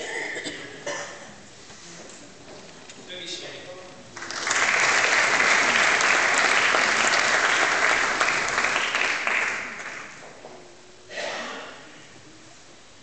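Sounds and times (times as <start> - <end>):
audience applauding: 4.1 - 10.3.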